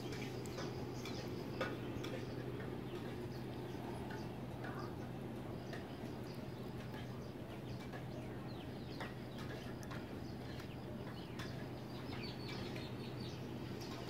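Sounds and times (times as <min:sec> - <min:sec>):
birds chirping: 0:00.0 - 0:14.0
steady low hum: 0:00.0 - 0:14.0.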